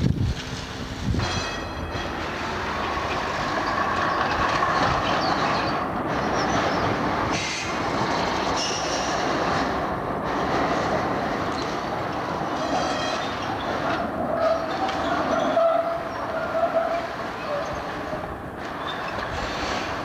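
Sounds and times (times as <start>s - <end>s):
tram wheels rumbling on rails: 0.0s - 20.0s
high wheel squeal: 1.2s - 9.4s, 12.4s - 20.0s.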